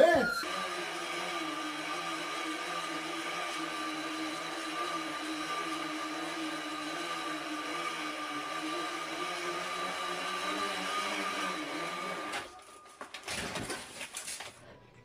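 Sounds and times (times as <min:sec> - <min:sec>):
bicycle wheel whirring: 0:01.4 - 0:12.6.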